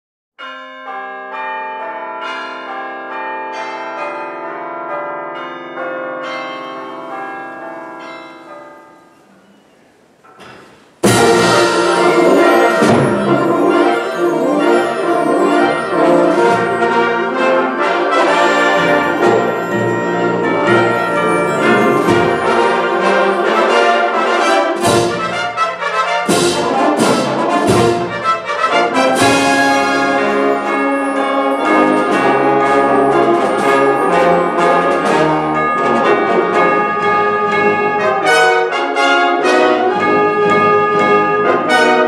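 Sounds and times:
brass instruments: 0:11.0 - 0:42.0
symphonic band playing: 0:11.0 - 0:42.0
bell tones ringing: 0:11.1 - 0:24.2, 0:29.8 - 0:36.7.

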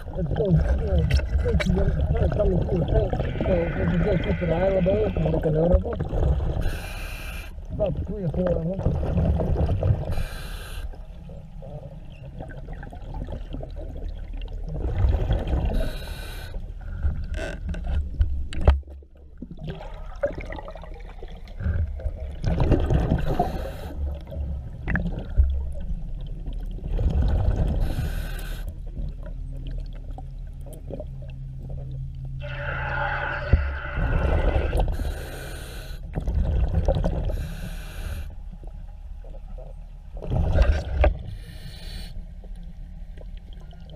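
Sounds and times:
rush of exhaled bubbles: 0:00.0 - 0:05.3, 0:14.7 - 0:16.1, 0:19.5 - 0:25.4, 0:33.2 - 0:35.1
regulator hiss on inhale: 0:06.6 - 0:07.6, 0:10.1 - 0:11.0, 0:15.8 - 0:17.1, 0:23.2 - 0:24.0, 0:27.8 - 0:28.7, 0:34.9 - 0:36.1, 0:37.3 - 0:38.4, 0:41.3 - 0:42.3.

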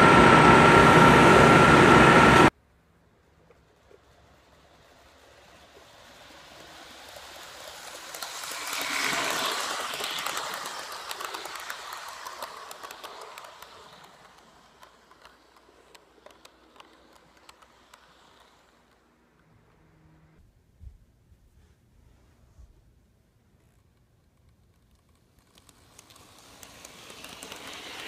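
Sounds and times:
model train wheels rumbling: 0:00.0 - 0:20.4, 0:24.0 - 0:28.0
sharp clicks of train wheels: 0:03.2 - 0:19.8, 0:23.8 - 0:28.0.

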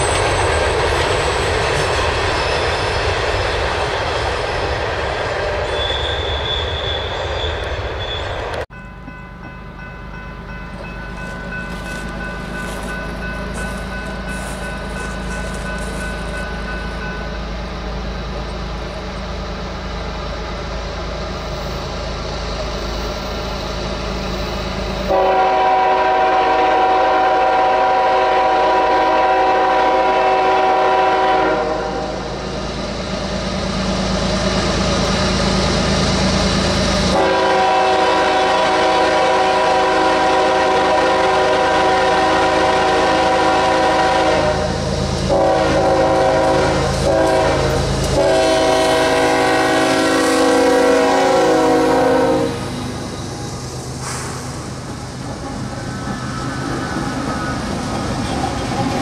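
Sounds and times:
train rumbling: 0:00.0 - 0:59.0
locomotive air horn blasts: 0:25.1 - 0:32.3, 0:37.1 - 0:52.9.

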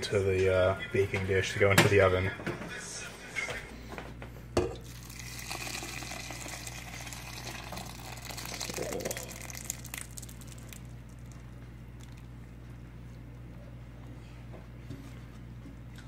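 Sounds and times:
thick sauce pouring: 0:04.8 - 0:12.3.

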